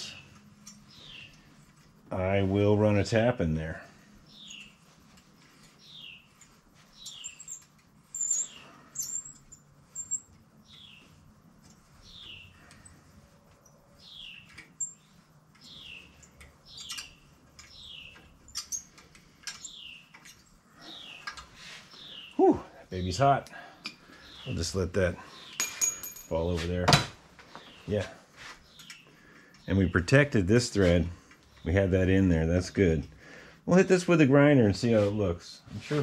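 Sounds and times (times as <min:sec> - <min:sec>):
metal squeaking in threads: 0:05.6 - 0:22.3.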